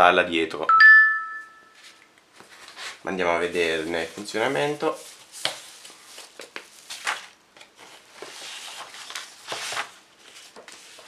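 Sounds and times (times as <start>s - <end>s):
wrapping sheet crinkling: 2.4s - 11.0s.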